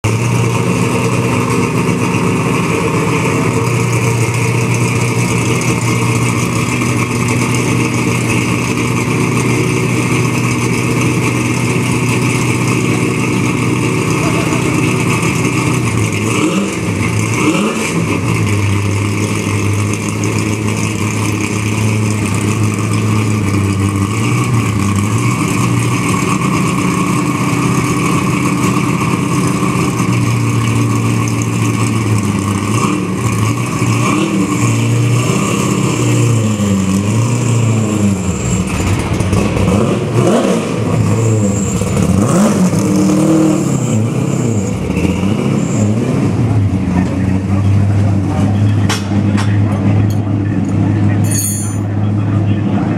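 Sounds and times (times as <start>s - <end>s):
race car engine idling and revving: 0.0s - 52.9s.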